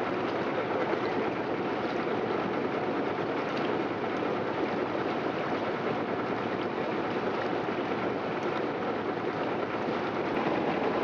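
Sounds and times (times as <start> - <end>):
boat engine drone: 0.0 - 11.0
water rushing: 0.0 - 11.0.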